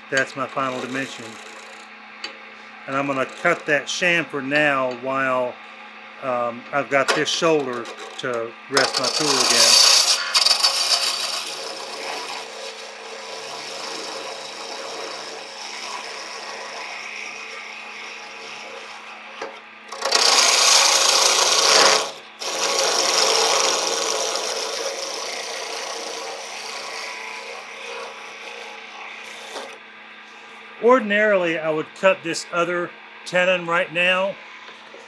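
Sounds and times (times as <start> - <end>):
lathe tool cutting wood: 0.0 - 2.0, 2.9 - 5.0, 7.2 - 29.9.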